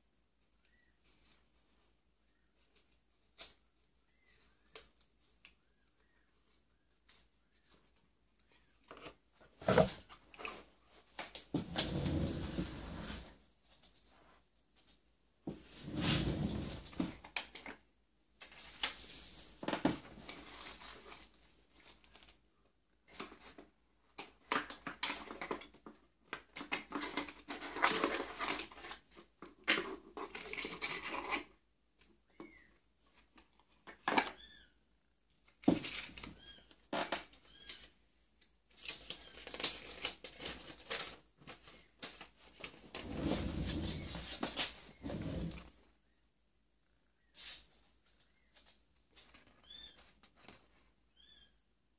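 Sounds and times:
cardboard and plastic rustling: 4.2s - 17.8s, 18.4s - 22.4s, 38.7s - 45.9s.

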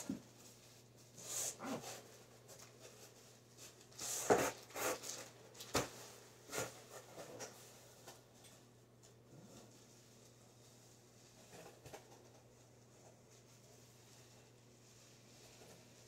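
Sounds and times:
packaging rustling and scraping: 0.1s - 8.3s.

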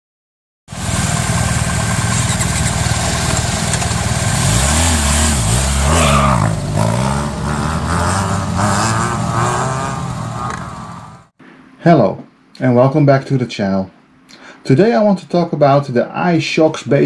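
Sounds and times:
motorcycle engine revving: 0.7s - 11.3s.

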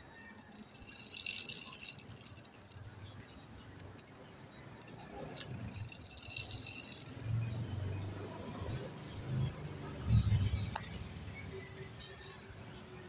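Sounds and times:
toy truck wheels rattling on concrete: 0.0s - 8.8s.

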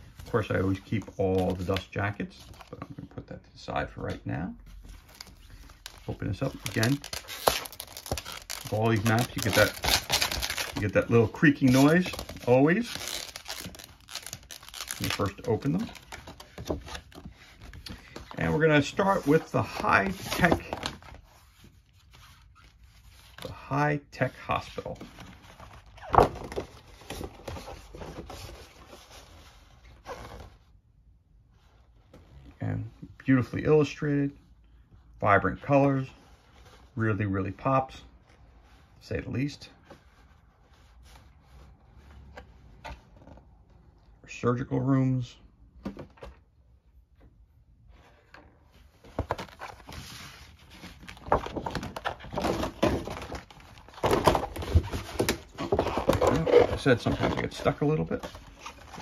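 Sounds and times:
paper map rustling and crackling: 4.0s - 23.6s, 47.9s - 59.0s.

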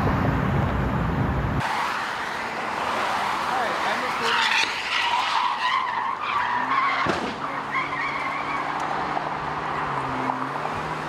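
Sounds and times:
car tyres skidding and squealing: 1.6s - 11.0s
car crash: 3.9s - 8.6s.

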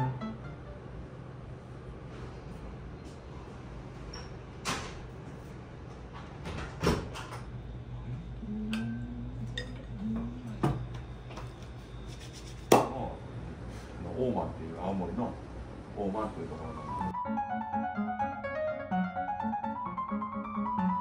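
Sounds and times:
low steady hum: 0.0s - 4.6s, 5.2s - 17.2s.

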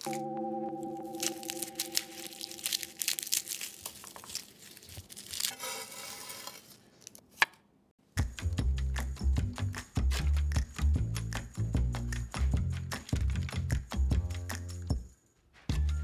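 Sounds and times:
garlic skins crackling and tearing: 1.2s - 7.2s
short scrape: 5.5s - 6.8s.

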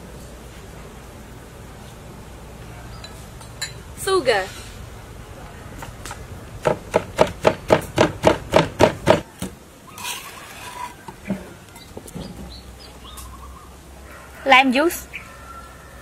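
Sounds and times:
pestle pounding in mortar: 6.6s - 9.3s
spoon scraping ceramic bowl: 10.0s - 11.1s.

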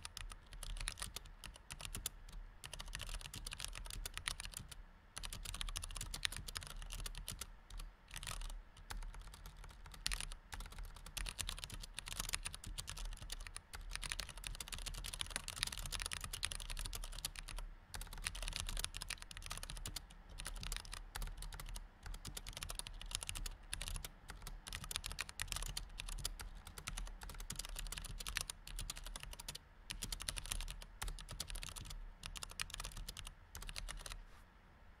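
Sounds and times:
fast typing on computer keyboard: 0.0s - 34.2s.

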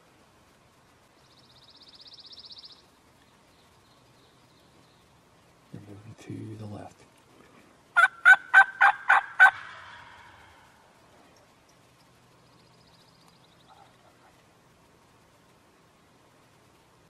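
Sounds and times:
turkey call yelps: 8.0s - 10.7s.

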